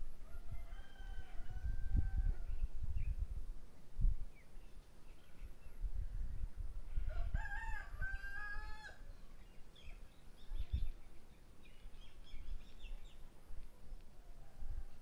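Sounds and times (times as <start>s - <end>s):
rooster crowing: 0.2s - 2.5s, 7.0s - 9.1s, 14.2s - 15.0s.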